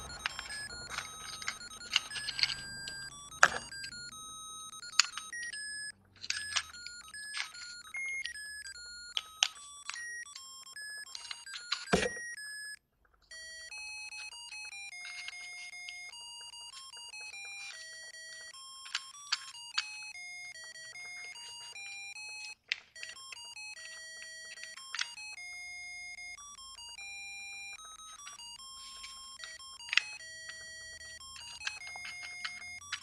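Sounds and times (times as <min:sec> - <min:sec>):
piezo buzzer beeping electronic tune: 0:00.0 - 0:05.9
fingers clicking on disc: 0:00.0 - 0:33.0.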